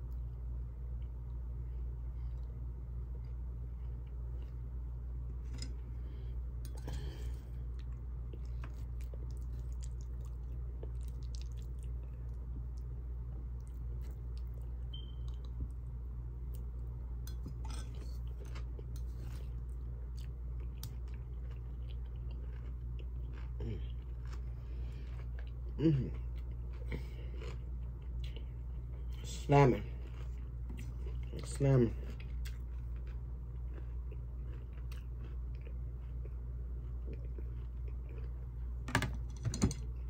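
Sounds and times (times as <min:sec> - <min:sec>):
steady low hum: 0:00.0 - 0:40.0
person chewing food: 0:00.9 - 0:38.8.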